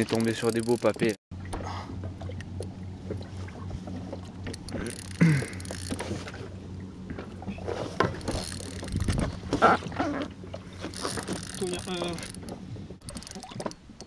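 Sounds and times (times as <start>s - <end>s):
steady low hum: 0.0s - 14.0s
knocks and rubs on boat: 5.9s - 14.0s.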